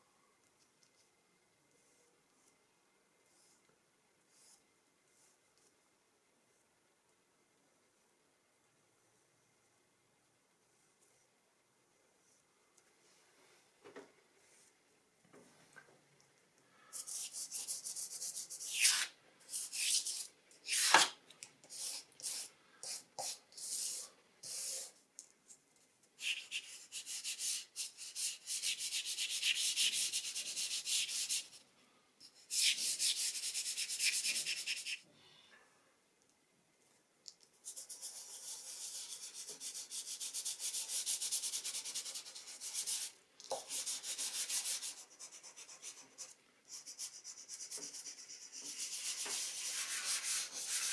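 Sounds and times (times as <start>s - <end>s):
pastel scraping on paper: 26.2s - 31.6s, 37.7s - 50.9s.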